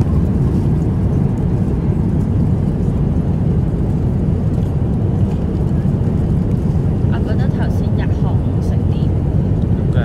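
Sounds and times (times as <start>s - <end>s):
airliner cabin drone: 0.0s - 10.0s.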